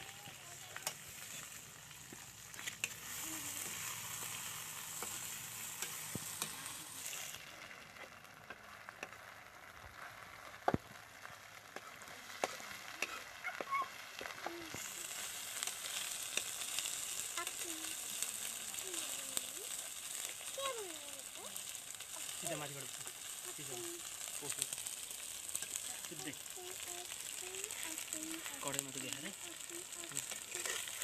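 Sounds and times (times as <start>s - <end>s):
locusts sizzling in oil: 0.0s - 31.0s
spatula scraping a pan: 2.4s - 9.2s, 30.2s - 31.0s.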